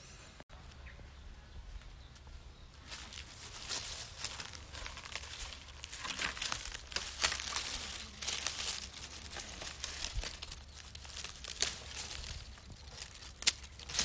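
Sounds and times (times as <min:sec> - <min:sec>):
dry leaves crackling and rustling: 0:02.8 - 0:14.0.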